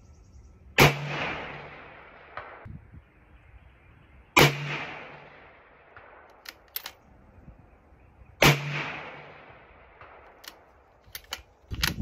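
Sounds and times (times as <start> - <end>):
rifle shot echoing: 0.8 - 2.7, 4.4 - 6.9, 8.4 - 10.7
rifle bolt metallic clicks: 6.3 - 7.1, 10.0 - 12.0.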